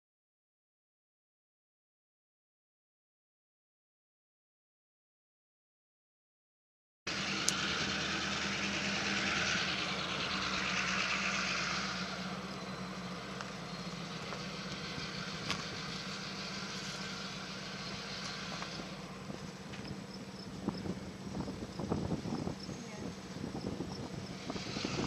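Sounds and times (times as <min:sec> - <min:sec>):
vehicle engine humming: 0:07.1 - 0:25.0.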